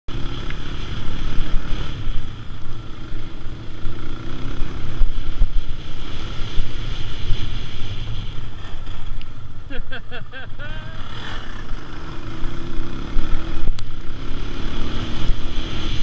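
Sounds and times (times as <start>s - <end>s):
wind noise on microphone: 4.3s - 9.6s
quad engine running: 8.4s - 16.0s.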